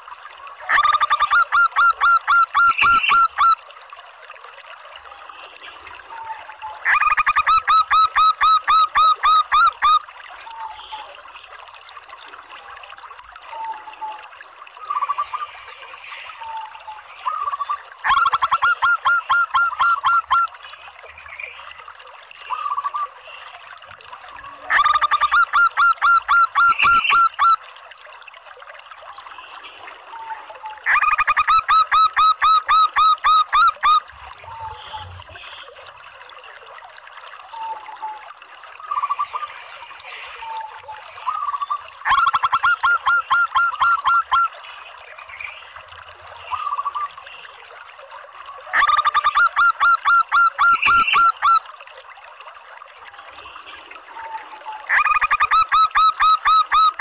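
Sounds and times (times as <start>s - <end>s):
dove calling: 17.3s - 20.5s, 41.3s - 44.5s.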